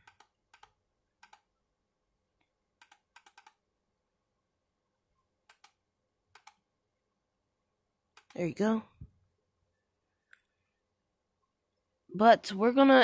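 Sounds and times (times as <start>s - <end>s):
computer mouse clicks: 0.0s - 1.5s, 2.4s - 3.6s, 5.4s - 6.7s, 8.1s - 8.4s.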